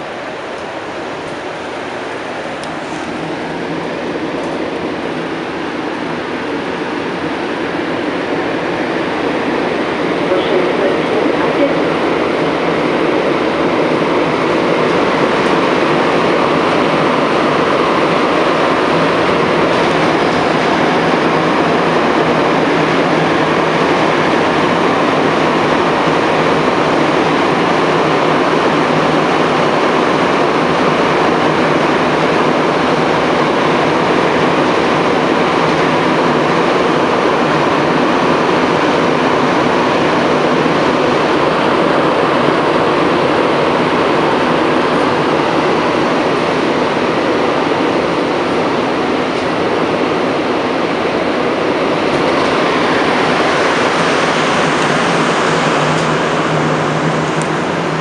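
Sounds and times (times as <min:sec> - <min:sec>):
train running through tunnel: 0:00.0 - 0:58.0
low hum: 0:51.8 - 0:58.0.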